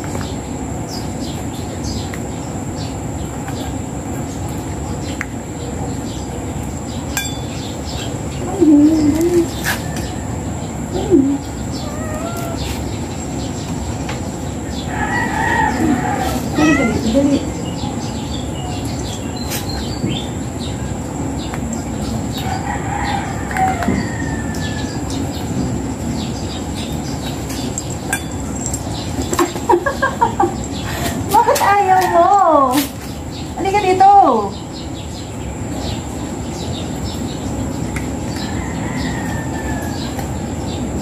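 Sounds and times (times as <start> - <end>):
steady background noise: 0.0 - 41.0
rooster crowing: 14.8 - 17.0, 22.4 - 25.1, 38.3 - 40.4.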